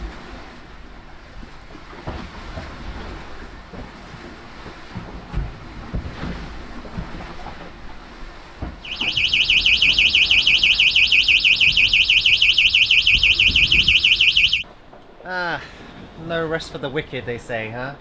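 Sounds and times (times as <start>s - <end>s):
rumble of wind and water: 0.0s - 18.0s
warbling electronic alarm tone: 8.8s - 14.6s.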